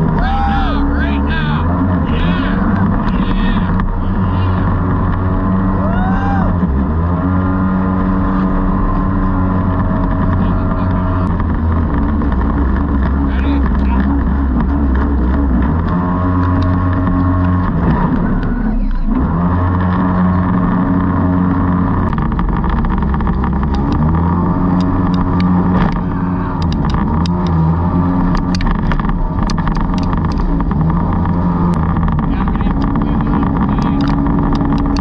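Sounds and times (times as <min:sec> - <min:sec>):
boat engine running: 0:00.0 - 0:35.0
water rushing along hull: 0:00.0 - 0:35.0.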